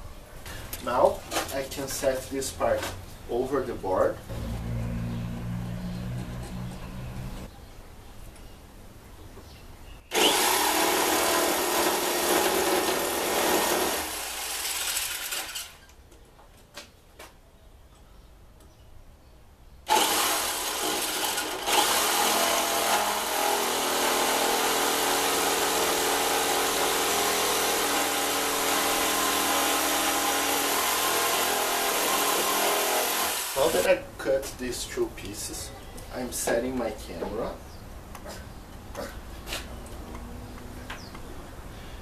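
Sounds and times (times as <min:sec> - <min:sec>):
jigsaw sawing through wood: 0:10.1 - 0:15.8, 0:19.9 - 0:33.9.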